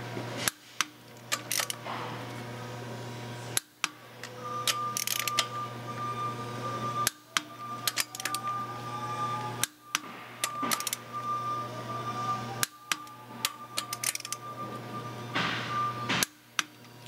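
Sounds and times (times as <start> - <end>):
steady low hum: 0.0 - 17.0
torque wrench clicking: 7.8 - 8.5, 12.6 - 14.4.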